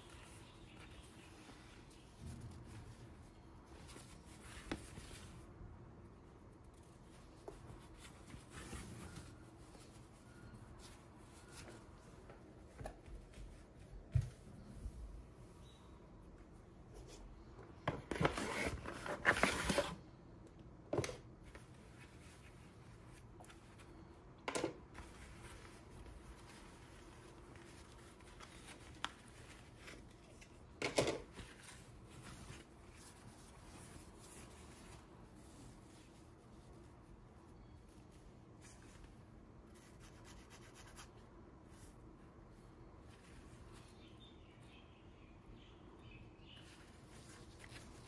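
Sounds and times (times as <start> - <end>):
cloth rustling: 0.0 - 5.6, 24.9 - 40.3, 46.5 - 48.0.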